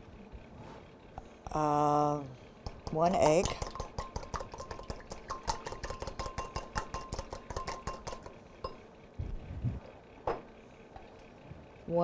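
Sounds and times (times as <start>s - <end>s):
whisk clicking against bowl: 2.6s - 8.8s.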